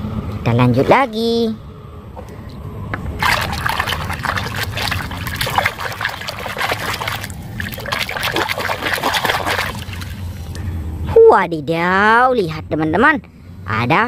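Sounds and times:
water splashing in a basin: 3.2 - 10.4.

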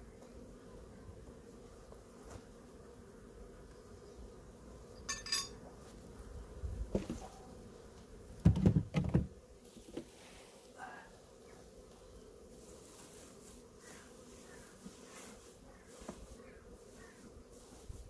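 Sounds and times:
honeybees humming: 0.0 - 18.0
short metallic clink: 5.1 - 5.6
heavy dull thumps: 8.4 - 9.4.

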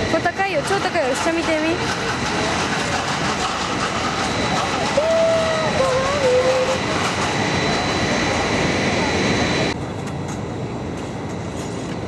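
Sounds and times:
machinery rumble with high whine: 0.0 - 12.0.

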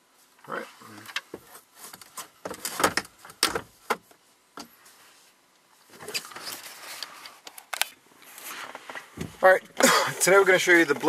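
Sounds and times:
soft handling rustle: 4.1 - 9.6.

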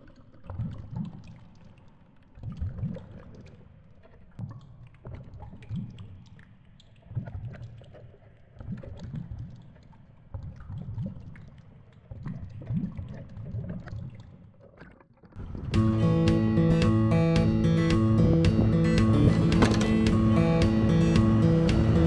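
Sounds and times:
muffled underwater rushing: 15.4 - 22.0.

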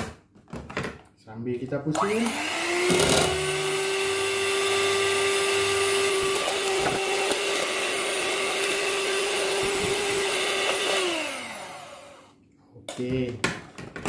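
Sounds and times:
electric hand mixer whisking: 2.0 - 12.4.

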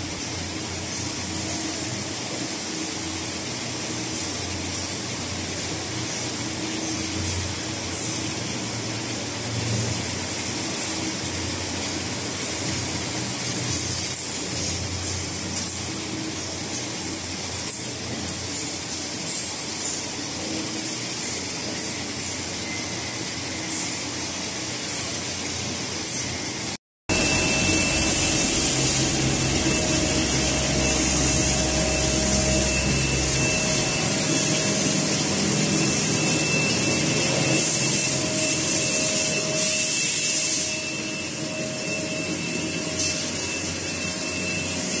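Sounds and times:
high machine whine: 0.0 - 45.0
lathes humming and hissing: 0.0 - 45.0.

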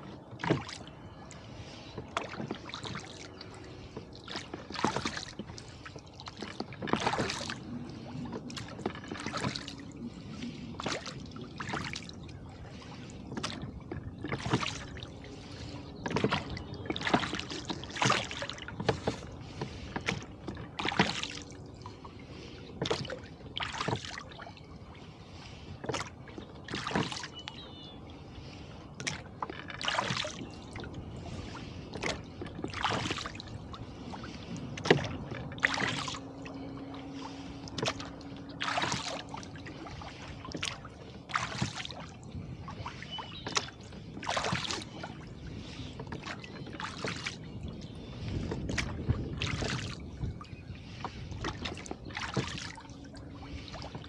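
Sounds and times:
oars splashing: 0.0 - 54.0
water washing: 31.4 - 42.0.

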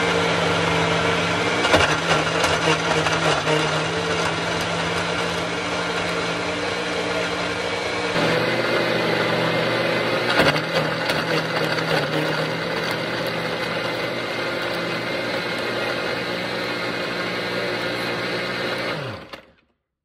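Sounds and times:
blender motor winding down: 0.0 - 19.6
blender running: 0.0 - 19.6
ice rattling in blender: 1.6 - 6.2, 8.2 - 19.5.

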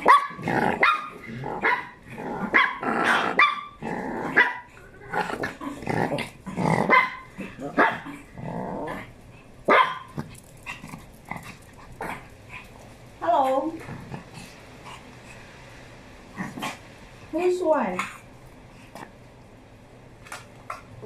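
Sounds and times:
small dogs barking and growling: 0.0 - 15.5, 16.2 - 17.0.

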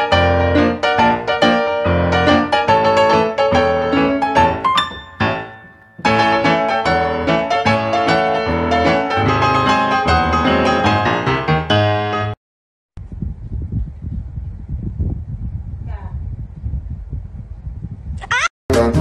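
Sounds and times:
piano music with quick notes: 0.0 - 12.4.

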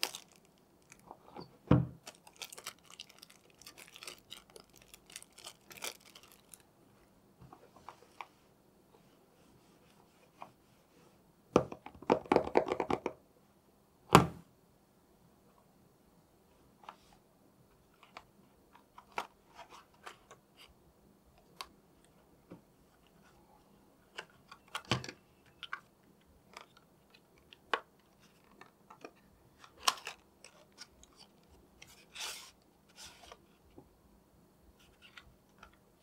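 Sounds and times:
rustling scrape: 31.8 - 33.5.

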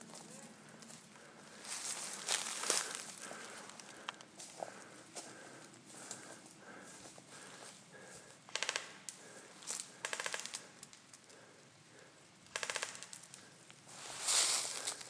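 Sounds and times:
airsoft rifle bursts: 8.5 - 9.0, 10.0 - 10.5, 12.5 - 13.1.

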